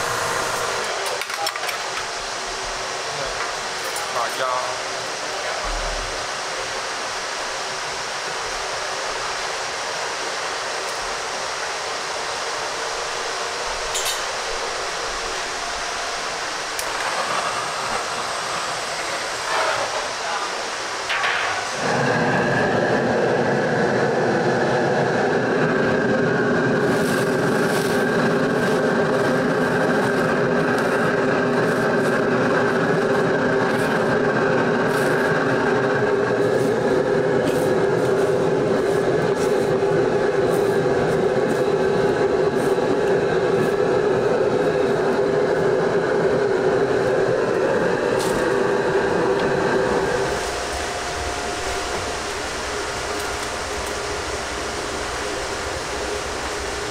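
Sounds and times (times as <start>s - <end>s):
boiling water: 0.0s - 56.9s
stove burner roar: 0.0s - 56.9s.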